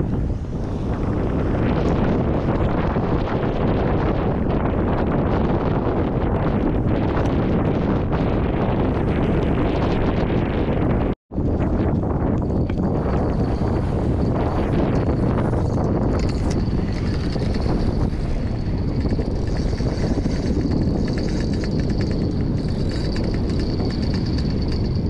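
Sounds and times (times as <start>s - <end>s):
wind buffeting the microphone: 0.0s - 25.0s
fishing reel whirring and ticking: 14.9s - 25.0s.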